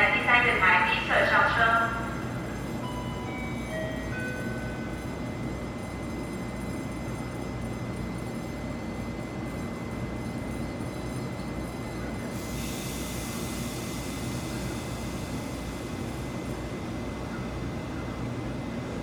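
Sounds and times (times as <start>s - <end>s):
electric train rumbling: 0.0s - 19.0s
hiss: 12.4s - 15.8s.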